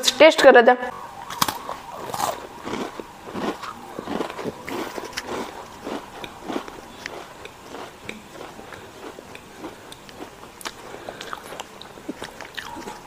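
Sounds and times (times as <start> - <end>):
person crunching cracker biscuit: 1.3 - 13.0.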